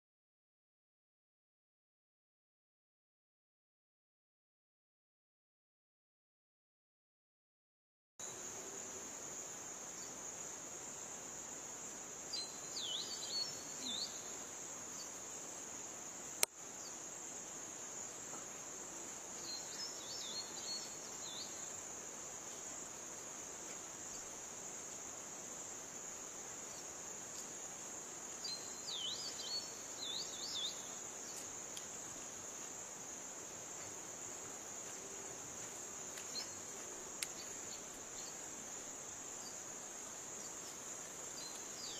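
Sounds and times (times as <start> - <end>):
insects droning: 8.2 - 41.9
bird chirping: 12.3 - 15.2, 19.4 - 21.8, 28.4 - 31.5.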